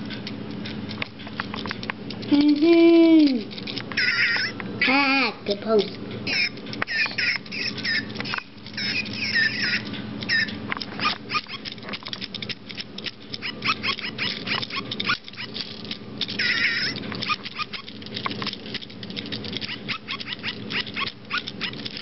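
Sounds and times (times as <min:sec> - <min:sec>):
rapid clicking: 0:05.6 - 0:22.0.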